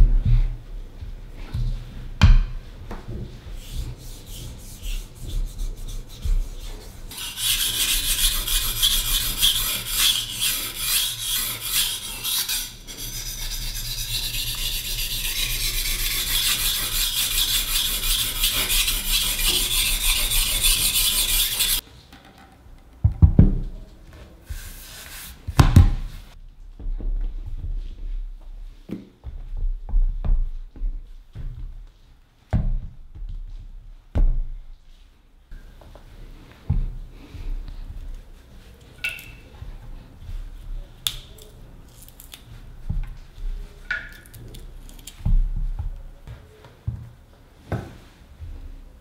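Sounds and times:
knife scraping on whetstone: 0:04.0 - 0:21.8.

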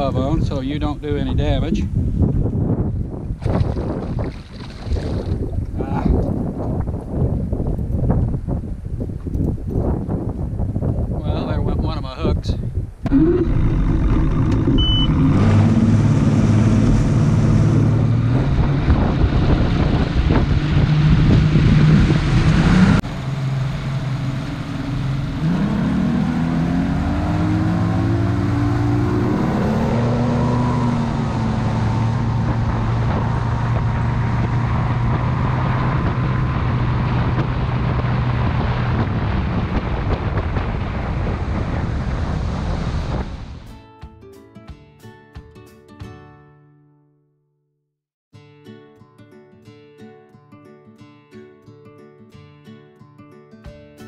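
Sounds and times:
rush of wind and water: 0:00.0 - 0:43.7
outboard motor running: 0:13.1 - 0:18.2.

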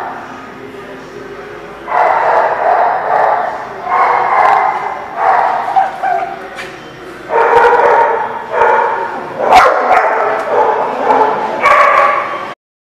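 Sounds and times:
dogs barking and yipping: 0:01.9 - 0:06.6, 0:07.3 - 0:12.5.

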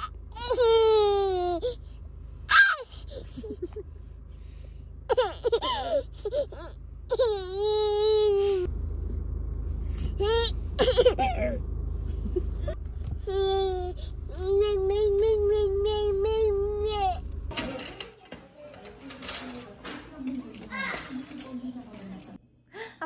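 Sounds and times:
toddler whining and wailing: 0:00.0 - 0:01.8, 0:02.5 - 0:03.3, 0:05.1 - 0:08.7, 0:10.2 - 0:11.6, 0:13.2 - 0:17.2.

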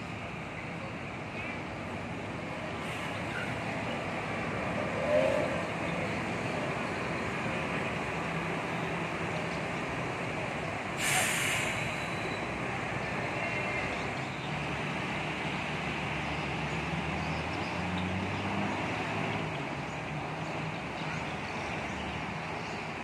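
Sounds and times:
diesel bus engine running: 0:00.0 - 0:23.0
air brakes hissing: 0:11.0 - 0:12.4.

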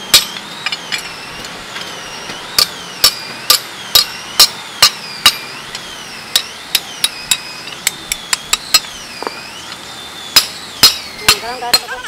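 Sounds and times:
hammer striking steel on anvil: 0:00.0 - 0:01.1, 0:02.6 - 0:05.4, 0:10.3 - 0:12.0.

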